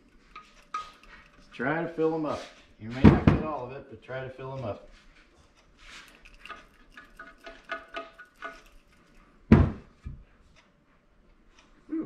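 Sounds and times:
loud thump: 9.5 - 9.8.

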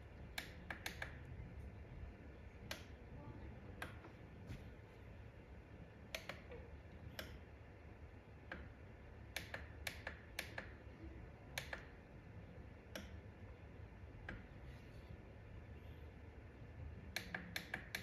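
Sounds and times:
push buttons clicking: 0.3 - 1.3, 6.1 - 7.4, 9.3 - 10.8, 11.5 - 11.9.

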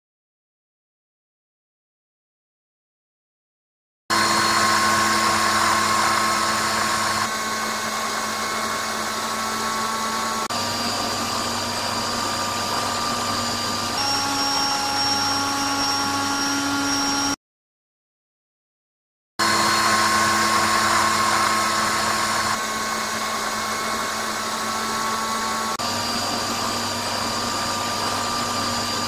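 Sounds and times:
vacuum cleaner whining: 4.1 - 17.4, 19.4 - 29.0.

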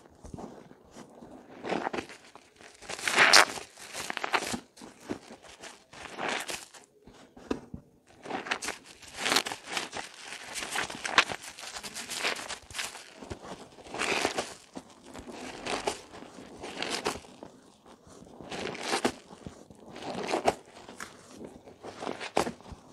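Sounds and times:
hands squeezing wet soap lather: 1.6 - 4.8, 8.2 - 22.9.

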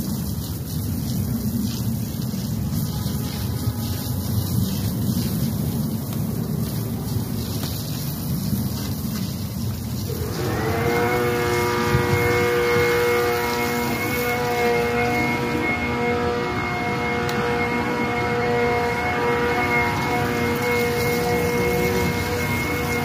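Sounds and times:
steady hiss: 0.0 - 23.0
wind rumbling on microphone: 0.0 - 23.0
pitched hum with overtones: 10.2 - 23.0.

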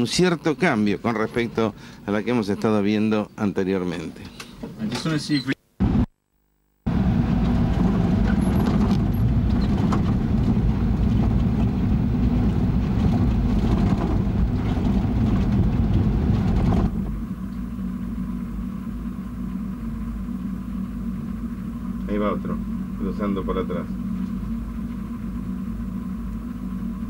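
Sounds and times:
truck engine running: 6.9 - 27.0
knocks and rattles: 7.5 - 17.1.

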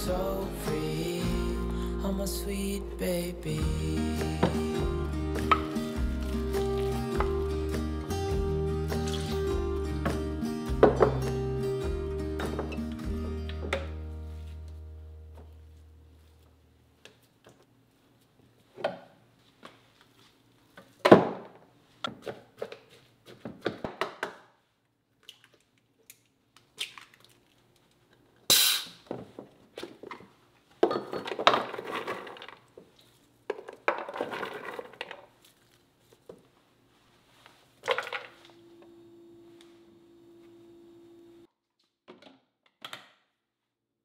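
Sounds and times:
jugs set down on wooden counter: 30.8 - 32.6, 33.5 - 35.2, 37.8 - 38.4.

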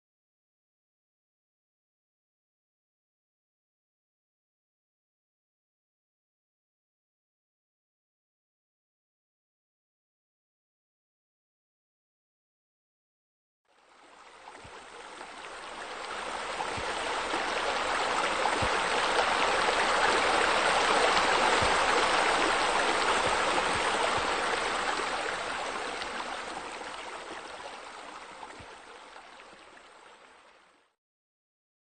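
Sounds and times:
water spilling into a pool: 13.8 - 30.7.

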